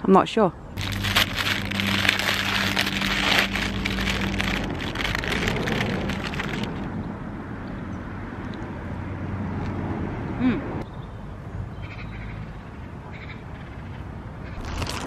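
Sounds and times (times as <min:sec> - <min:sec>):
plastic packaging crinkling: 0:00.8 - 0:06.9, 0:14.6 - 0:15.0.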